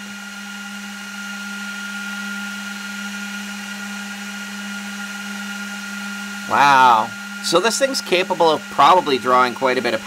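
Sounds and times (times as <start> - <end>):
cooling fans humming: 0.0 - 10.0.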